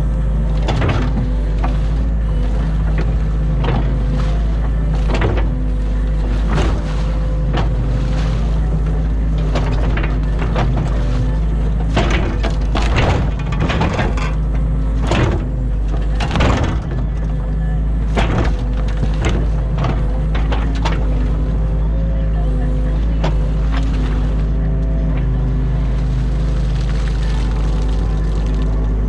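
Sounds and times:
excavator diesel engine running: 0:00.0 - 0:29.0
bucket cracking and crunching debris: 0:26.2 - 0:29.0.

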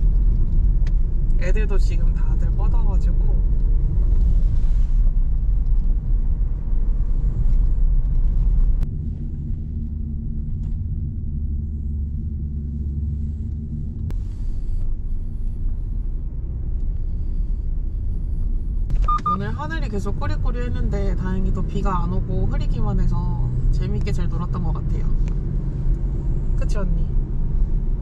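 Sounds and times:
car cabin road and engine rumble: 0:00.0 - 0:28.0.

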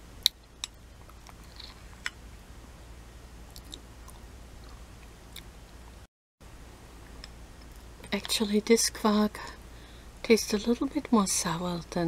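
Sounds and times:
mouth and chewing sounds: 0:00.2 - 0:02.2, 0:03.5 - 0:05.5.

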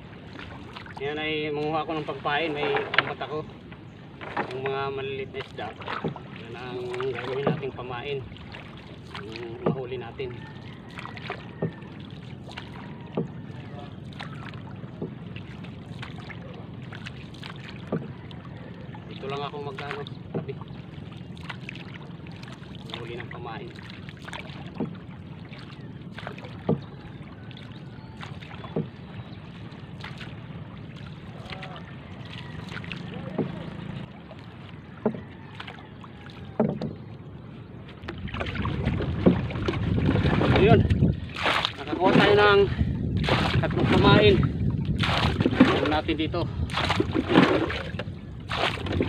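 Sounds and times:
low rush of wind: 0:00.0 - 0:49.0
paddle strokes in water: 0:00.0 - 0:49.0
soft knocks on boat: 0:02.3 - 0:07.8, 0:09.1 - 0:10.6, 0:11.2 - 0:12.0, 0:12.6 - 0:16.2, 0:17.7 - 0:18.6, 0:19.7 - 0:20.7, 0:24.3 - 0:27.4, 0:28.2 - 0:29.5, 0:33.1 - 0:34.1, 0:34.8 - 0:37.2, 0:37.8 - 0:42.4.

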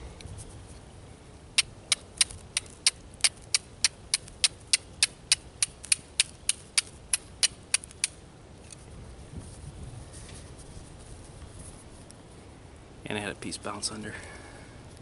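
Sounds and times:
fire striker clicking on flint: 0:01.6 - 0:08.8.

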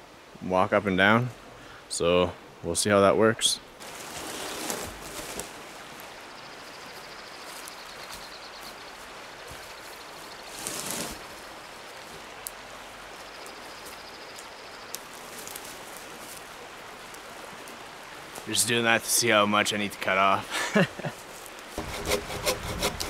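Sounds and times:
rustle: 0:00.0 - 0:23.0
river water rushing: 0:03.6 - 0:21.9.

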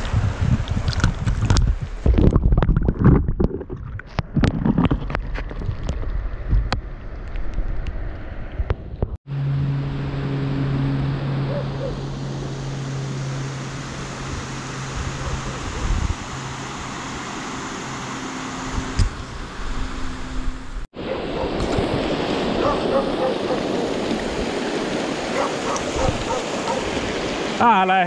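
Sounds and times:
water splashing at camera: 0:00.0 - 0:08.8, 0:21.4 - 0:27.6
river water rushing: 0:11.5 - 0:20.4, 0:21.0 - 0:28.0.

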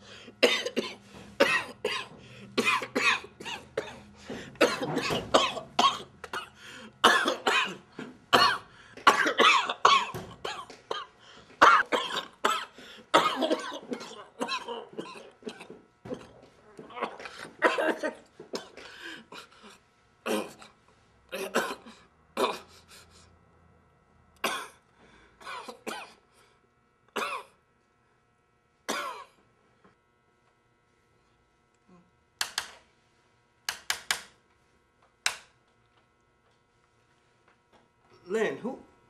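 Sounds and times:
man coughing and hacking: 0:00.4 - 0:22.9, 0:24.4 - 0:24.8, 0:25.4 - 0:26.2, 0:27.2 - 0:27.6, 0:28.9 - 0:29.4.

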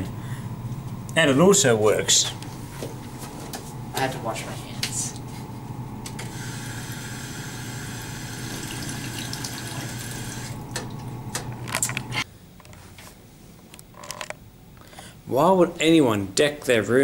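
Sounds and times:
drinking fountain water stream: 0:06.3 - 0:11.2.

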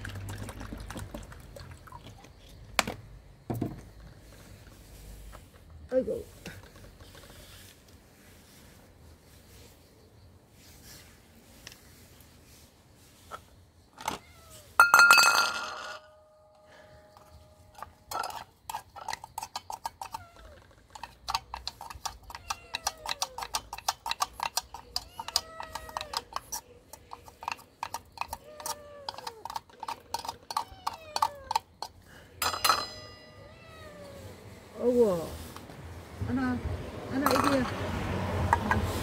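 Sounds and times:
cats meowing: 0:14.1 - 0:14.8, 0:20.0 - 0:20.8, 0:22.2 - 0:23.7, 0:24.8 - 0:26.6, 0:28.2 - 0:31.7, 0:33.2 - 0:34.9
metal spoon scraping tin can: 0:17.2 - 0:32.0, 0:37.1 - 0:39.0.

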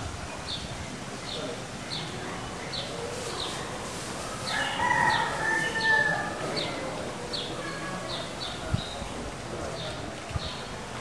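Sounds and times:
rooster crowing: 0:04.4 - 0:06.4.

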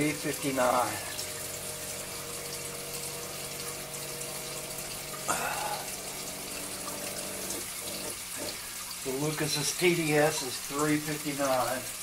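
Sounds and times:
water trickling: 0:00.0 - 0:12.0.

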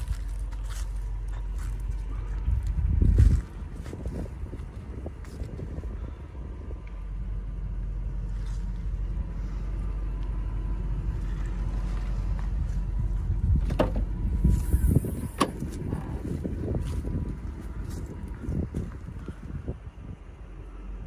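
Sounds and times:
engine idling low rumble: 0:00.0 - 0:21.0
rear hatch knocks: 0:13.6 - 0:14.1.

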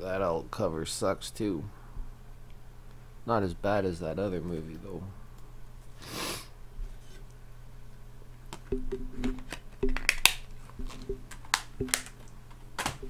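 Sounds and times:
plastic case clicks and snaps: 0:09.3 - 0:12.2.

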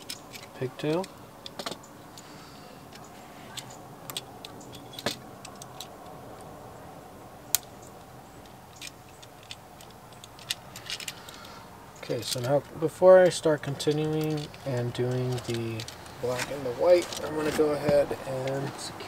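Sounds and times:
wiring clicks and rattles: 0:12.1 - 0:18.8.

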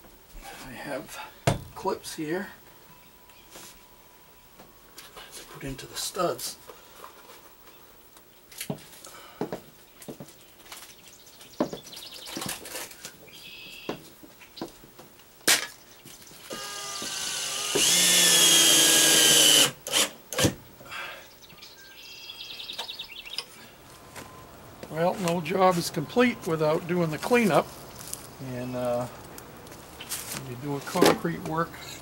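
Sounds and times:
power drill running: 0:16.5 - 0:20.4.

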